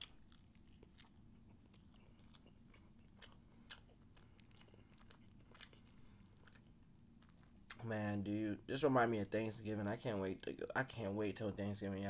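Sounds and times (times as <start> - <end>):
faint chewing with mouth clicks: 0.0 - 7.9.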